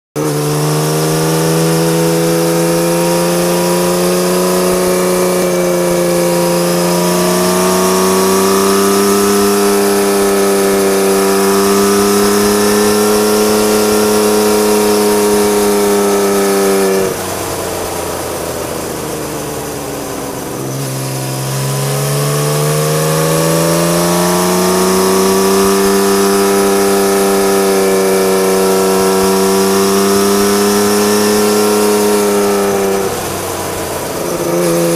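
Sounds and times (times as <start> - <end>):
motorcycle engine revving: 0.2 - 34.9.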